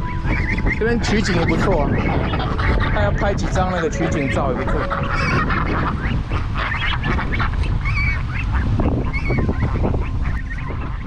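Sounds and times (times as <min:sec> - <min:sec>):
geese honking: 0:00.0 - 0:11.0
wind rumble on microphone: 0:00.0 - 0:11.0.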